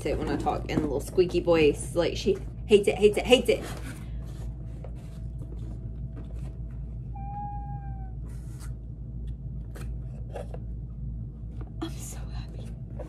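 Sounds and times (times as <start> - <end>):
cardboard and paper rustling: 3.2 - 7.1.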